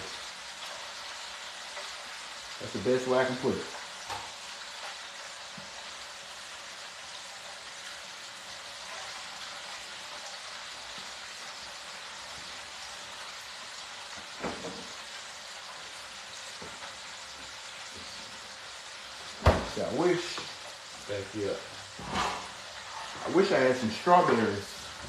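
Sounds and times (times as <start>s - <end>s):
sizzling hiss from cookware: 0.0s - 25.0s.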